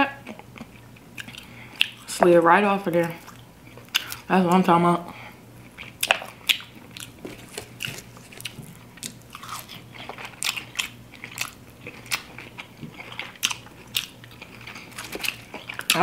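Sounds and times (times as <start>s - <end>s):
quiet chewing: 0.2s - 2.1s, 5.6s - 16.0s
crunching fried chicken: 5.7s - 16.0s.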